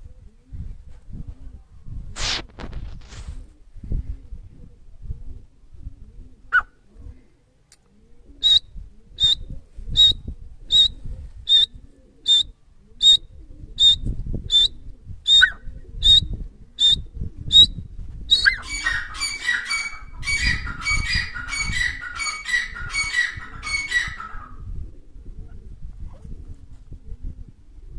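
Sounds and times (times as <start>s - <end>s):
bird whistled calls: 8.4s - 9.4s, 10.0s - 13.2s, 13.8s - 22.4s.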